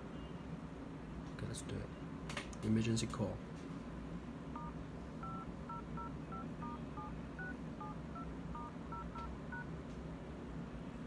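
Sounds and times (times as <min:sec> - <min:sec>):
phone keypad beeps: 0:04.6 - 0:09.7.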